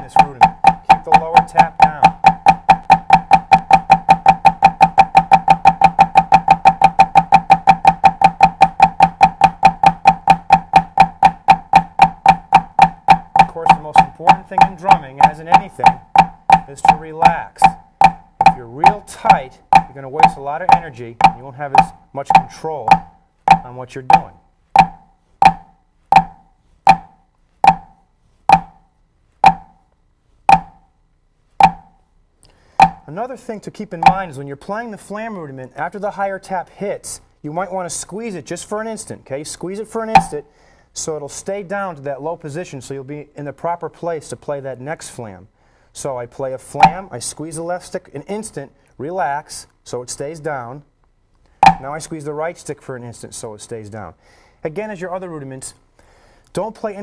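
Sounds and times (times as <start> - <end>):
drumsticks on practice pad: 0.0 - 29.8, 30.5 - 30.9, 31.6 - 32.0, 32.8 - 33.1, 34.0 - 34.3, 40.1 - 40.4, 46.8 - 47.1, 51.6 - 51.9.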